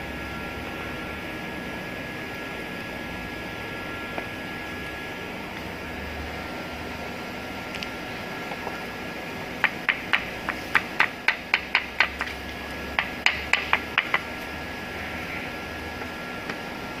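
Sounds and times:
hammer knocking wooden block: 9.6 - 12.3, 13.0 - 14.2.

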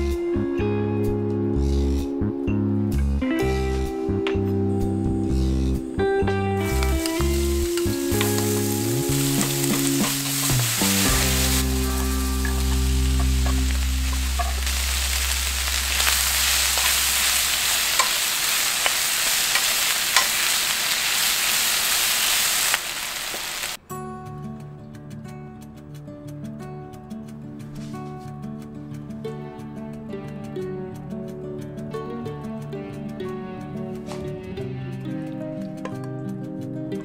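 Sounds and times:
background music: 0.0 - 19.4, 23.8 - 37.0
vegetables sizzling in hot oil: 6.7 - 23.8.

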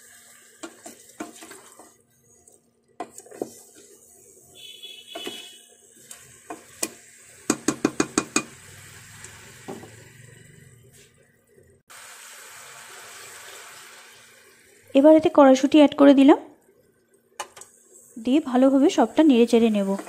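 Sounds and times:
wooden spatula scraping metal pot: 0.6 - 4.0, 19.4 - 20.0.

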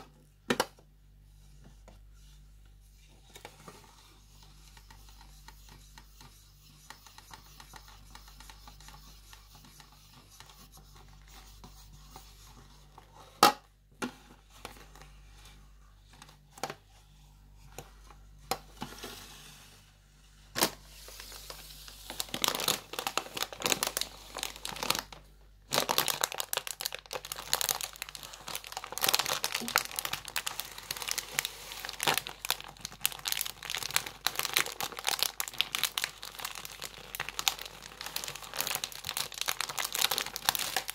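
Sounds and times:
plastic packet crinkling: 21.1 - 40.9.

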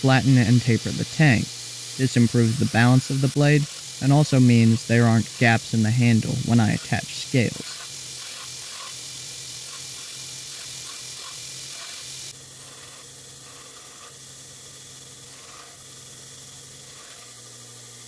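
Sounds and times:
belt grinder grinding steel: 0.0 - 18.0.

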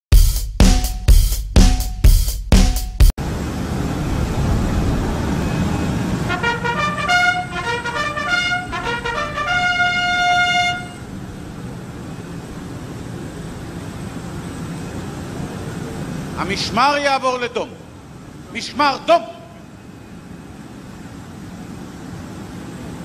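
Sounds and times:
brass fanfare: 6.2 - 11.2.

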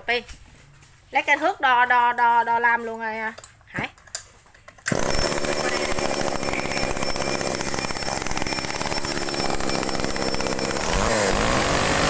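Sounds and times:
chainsaw engine running: 4.8 - 12.0.

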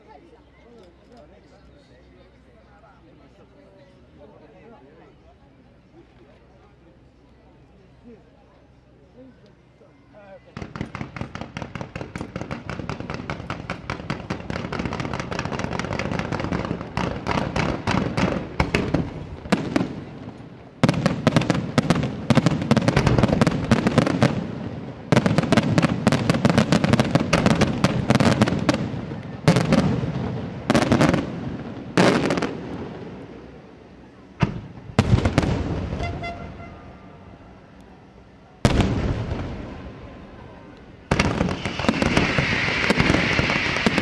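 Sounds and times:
firework pops and crackles: 10.6 - 32.8, 40.8 - 44.0.

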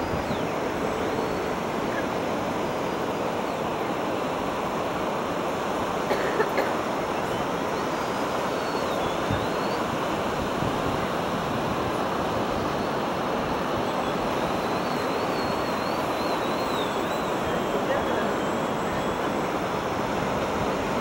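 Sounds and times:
distant model airplane motor whine: 0.0 - 21.0
surf: 0.0 - 21.0
wind noise: 9.0 - 21.0.

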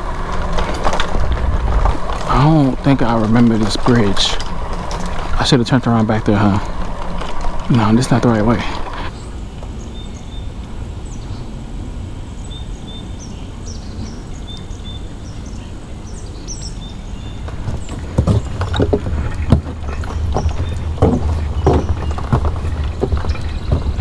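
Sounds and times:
footsteps on wooden boardwalk: 0.0 - 9.8, 17.2 - 24.0
low rumble: 0.0 - 14.2
small birds chirping: 0.0 - 24.0.

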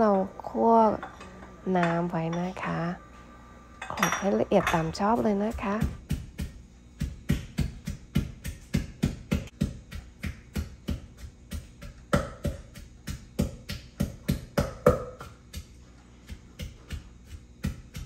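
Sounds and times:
pestle pounding in mortar: 4.0 - 18.0.

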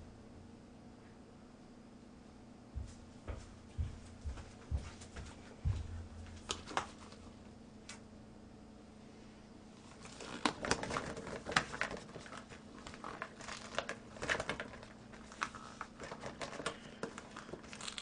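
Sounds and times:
rubber glove crinkling: 6.3 - 7.4, 9.8 - 18.0.

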